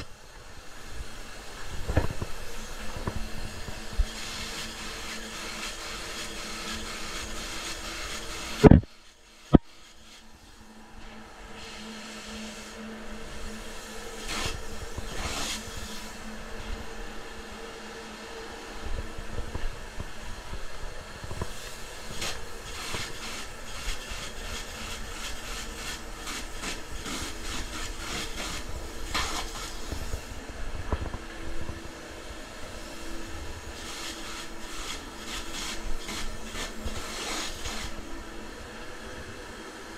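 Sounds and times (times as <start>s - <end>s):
spray foam gun hissing bursts: 0.0s - 10.8s, 11.5s - 16.5s, 21.3s - 30.4s, 32.6s - 38.4s
steady machine hum: 0.0s - 39.9s.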